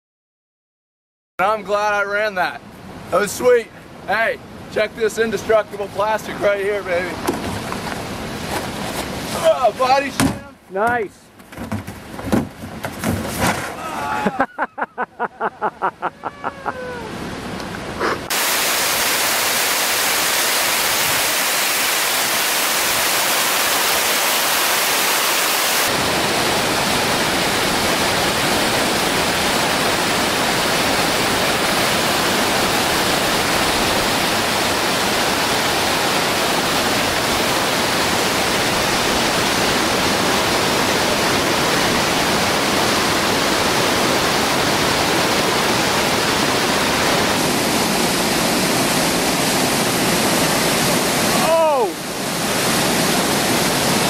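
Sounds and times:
whitewater rapids rushing: 16.2s - 54.0s.

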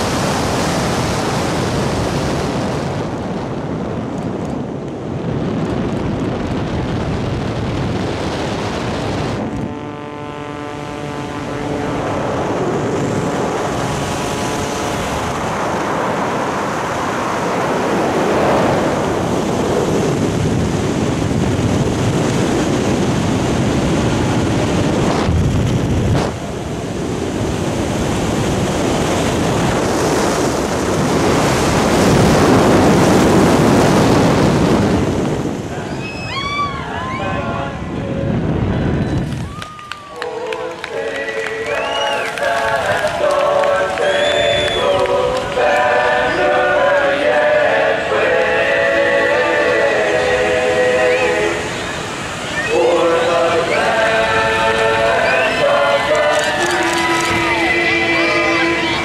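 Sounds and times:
wind rushing over microphone: 0.0s - 59.0s
pitched hum: 7.7s - 18.2s.

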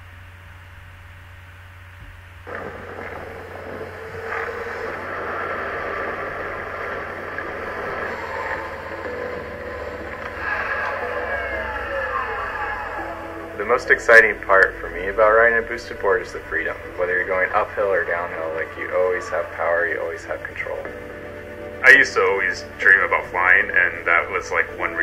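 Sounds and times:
low hum: 0.0s - 25.0s
wheels rolling on pavement: 2.4s - 19.6s
whining gliding tones: 2.4s - 25.0s.

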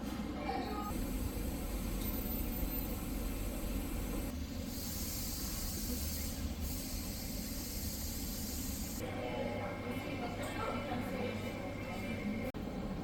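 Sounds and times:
bright hiss: 1.0s - 9.0s.

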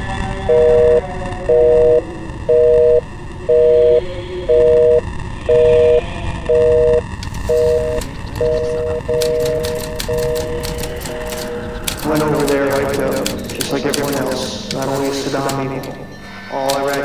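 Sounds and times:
low rumbling noise: 0.0s - 17.0s
telephone busy signal: 0.5s - 13.1s.

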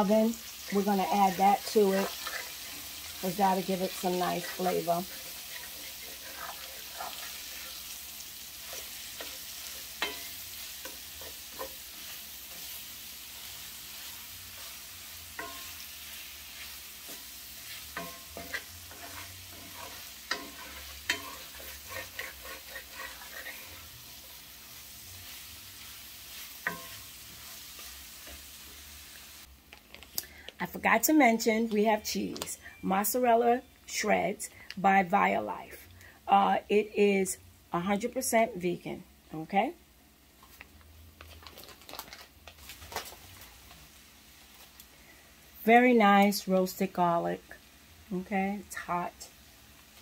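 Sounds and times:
meat sizzling in a skillet: 0.0s - 29.6s, 42.6s - 50.0s
wooden spatula scraping pan: 1.1s - 7.9s, 15.4s - 24.4s.

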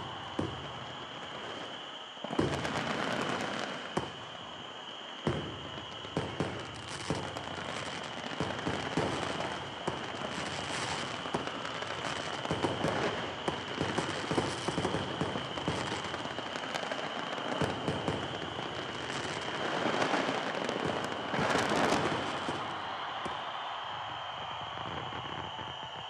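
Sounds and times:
fireworks crackling and banging: 0.0s - 26.0s.

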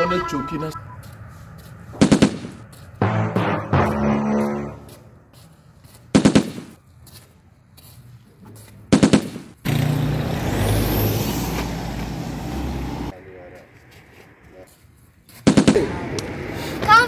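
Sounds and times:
whistle rising in pitch: 0.0s - 1.2s
machine-gun fire: 2.0s - 4.1s, 6.2s - 6.8s, 8.9s - 9.5s, 15.5s - 16.0s.

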